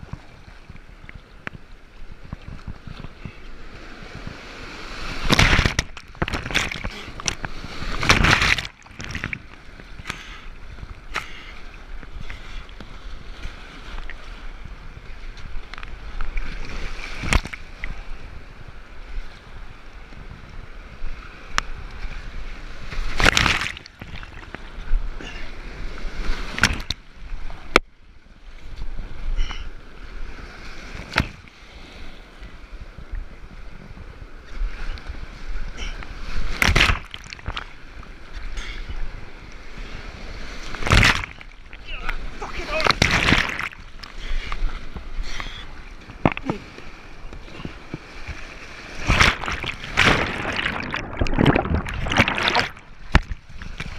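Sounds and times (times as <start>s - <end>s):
paddle strokes: 0.0s - 18.3s, 33.7s - 53.9s
waves splashing against boat: 0.0s - 53.9s
whitewater rushing: 40.7s - 46.9s, 49.0s - 53.9s.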